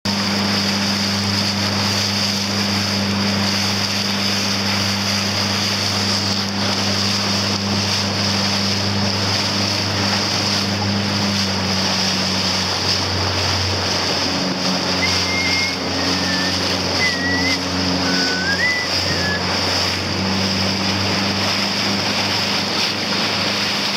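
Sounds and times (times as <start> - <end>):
motorboat engine running: 0.1 - 23.9
water rushing: 0.1 - 23.9
short high chirps: 15.0 - 19.4.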